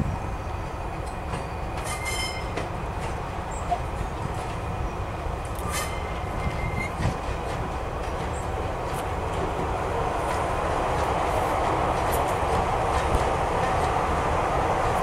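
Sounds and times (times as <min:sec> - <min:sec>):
diesel locomotive engine running: 0:00.0 - 0:15.0
thin high squeal: 0:01.8 - 0:02.5, 0:05.6 - 0:07.0.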